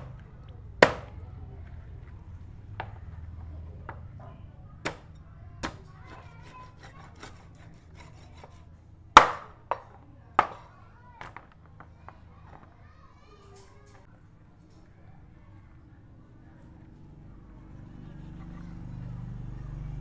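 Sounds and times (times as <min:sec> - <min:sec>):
cleaver chopping on wooden board: 0:00.8 - 0:01.2, 0:04.8 - 0:07.4, 0:09.2 - 0:10.7.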